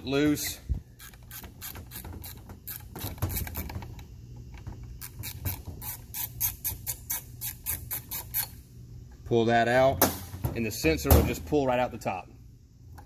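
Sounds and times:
ratchet wrench clicking: 1.0 - 3.7, 5.0 - 8.6.

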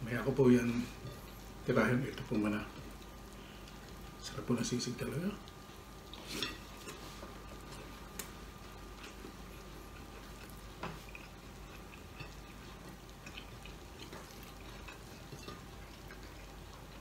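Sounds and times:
chewing: 5.4 - 17.0.

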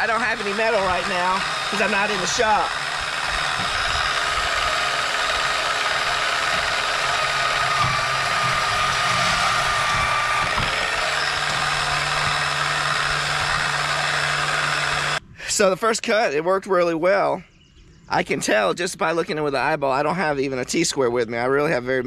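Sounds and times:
band saw cutting pipe: 0.0 - 15.7.

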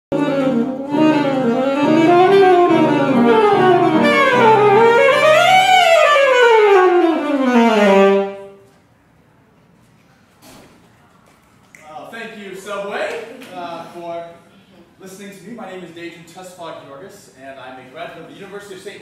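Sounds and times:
alto saxophone playing fast runs: 0.1 - 8.6.

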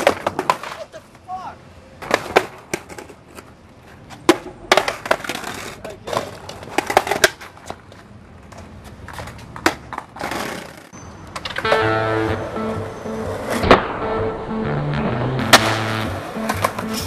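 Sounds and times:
skateboards clacking on concrete: 0.0 - 12.0, 15.5 - 17.0.

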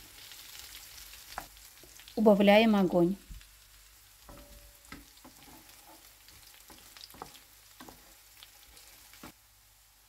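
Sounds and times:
food frying in oil: 0.0 - 10.0
wooden spatula knocking pan: 4.3 - 8.2.

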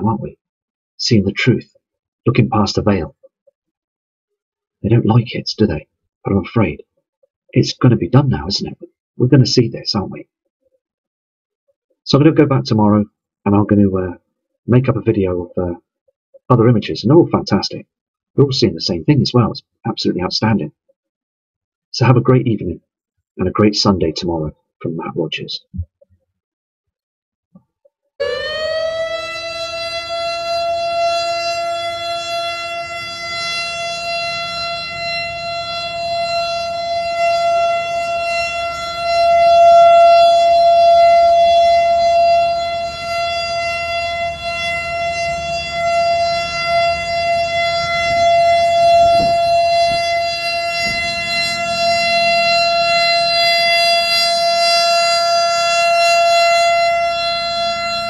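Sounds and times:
warning siren steady tone: 0.0 - 0.4, 4.8 - 6.8, 7.5 - 10.3, 27.6 - 58.0.

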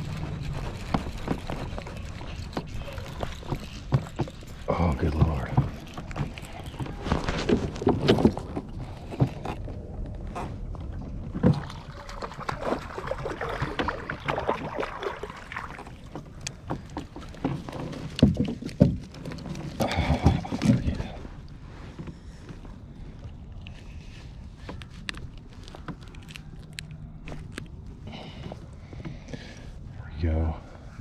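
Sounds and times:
rustling of handling: 0.0 - 10.8, 15.9 - 29.8.

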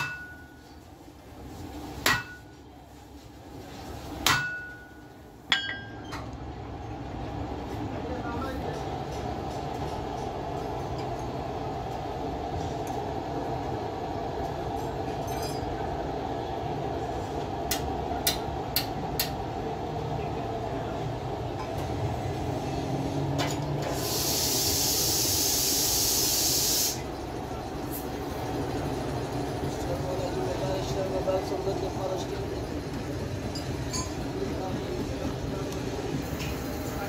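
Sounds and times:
loud hiss: 23.8 - 27.1.

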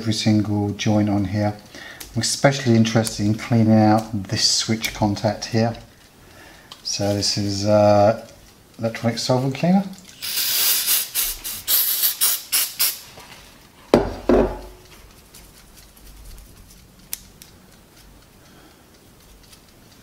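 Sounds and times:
aerosol spray hissing: 10.2 - 13.1
faint handling sounds: 13.0 - 20.0.

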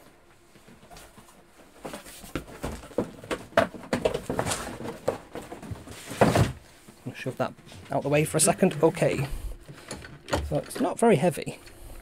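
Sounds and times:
objects rustling and knocking on desk: 0.6 - 6.7.

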